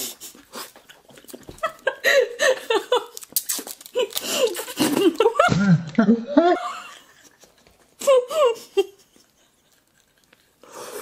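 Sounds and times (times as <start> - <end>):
women laughing and giggling: 0.9 - 3.2, 4.0 - 10.3.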